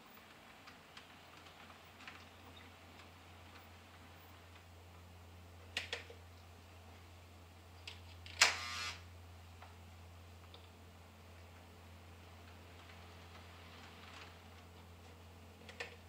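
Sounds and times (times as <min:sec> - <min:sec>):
model train clicks and clatter: 0:00.0 - 0:04.7
steady low hum: 0:00.0 - 0:16.0.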